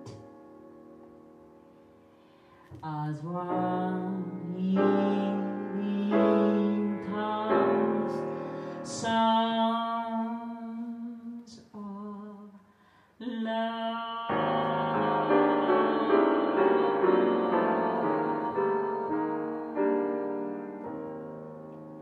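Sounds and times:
grand piano chords: 0:00.0 - 0:11.2, 0:14.0 - 0:22.0
woman singing with vibrato: 0:02.8 - 0:12.6, 0:13.2 - 0:20.8.

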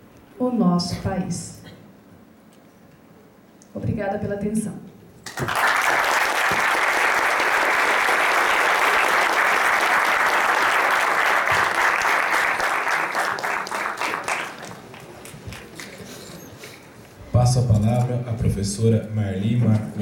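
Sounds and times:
audience applauding: 0:05.2 - 0:16.5.

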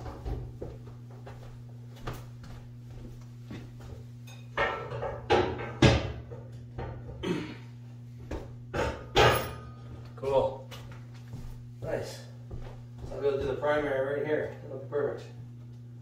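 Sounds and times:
low electrical hum: 0:00.0 - 0:16.0
metal clanks and knocks: 0:04.3 - 0:07.2, 0:08.7 - 0:09.9.

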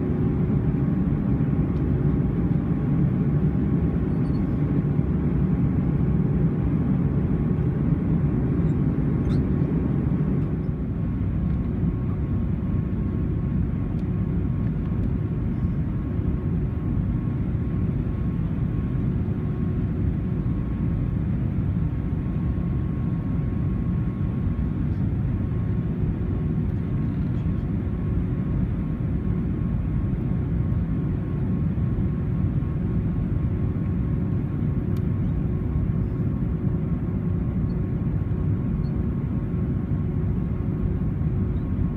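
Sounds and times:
engine and airflow rumble: 0:00.0 - 0:41.9
faint steady hum: 0:00.0 - 0:41.9.

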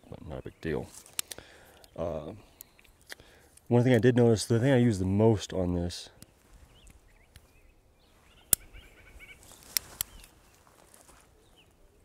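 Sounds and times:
small birds chirping: 0:00.0 - 0:12.0
sharp clicks: 0:01.1 - 0:02.0.

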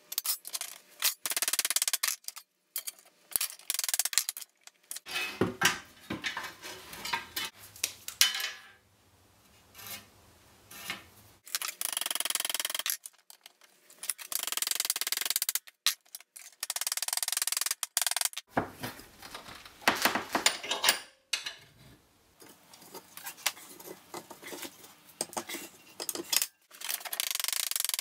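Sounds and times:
metal-on-metal scraping: 0:04.9 - 0:05.4.

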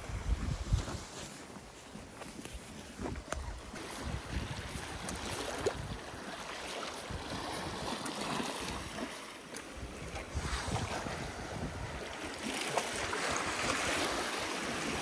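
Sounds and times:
wind rumbling on microphone: 0:00.0 - 0:02.0, 0:02.6 - 0:08.0, 0:08.6 - 0:15.0
waves washing against rocks: 0:03.7 - 0:15.0.

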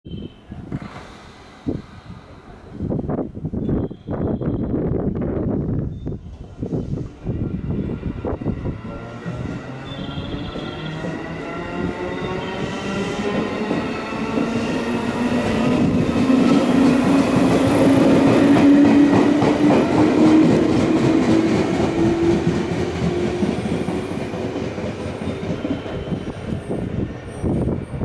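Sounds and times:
electric train accelerating whine: 0:05.7 - 0:27.8.

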